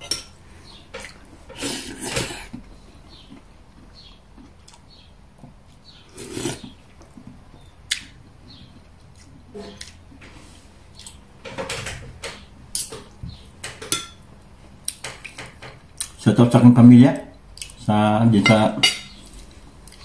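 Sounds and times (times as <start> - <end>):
cutlery clinking on a plate: 11.5 - 14.2, 18.4 - 19.2.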